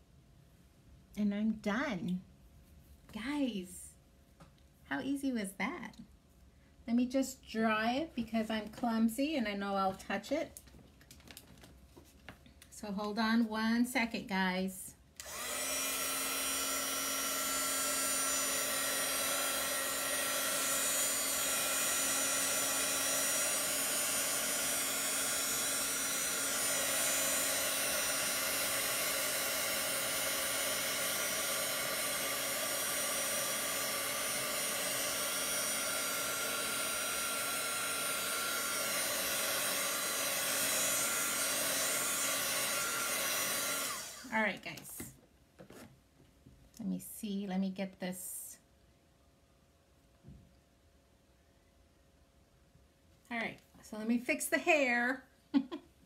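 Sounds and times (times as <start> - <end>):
hot-air dryer blowing: 15.2 - 44.6.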